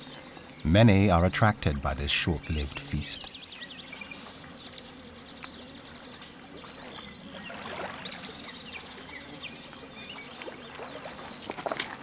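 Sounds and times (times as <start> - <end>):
small birds chirping: 0.0 - 12.0
water lapping at shore: 6.5 - 12.0.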